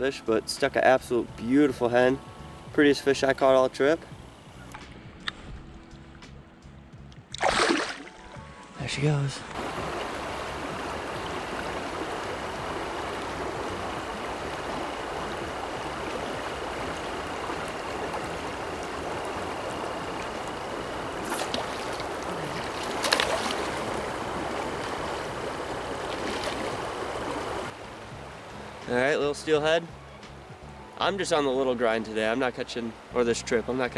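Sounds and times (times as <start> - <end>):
creek water rushing: 7.4 - 8.4, 9.0 - 33.9.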